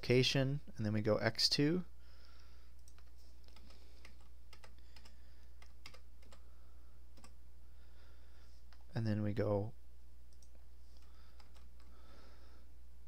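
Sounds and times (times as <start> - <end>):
keyboard keys clicking: 2.8 - 6.4, 11.4 - 11.9.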